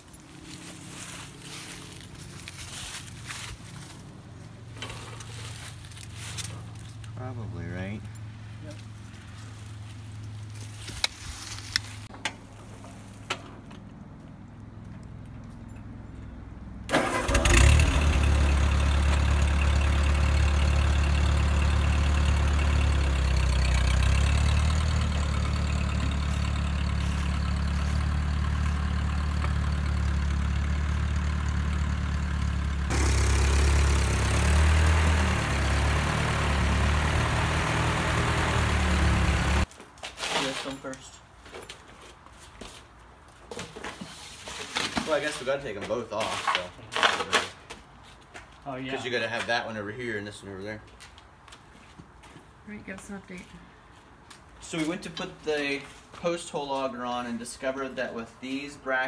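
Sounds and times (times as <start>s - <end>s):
tractor engine idling: 11.6s - 39.7s.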